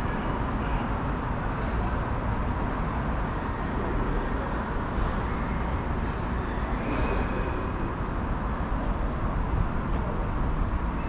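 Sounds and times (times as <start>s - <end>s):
low rumble of traffic: 0.0s - 11.0s.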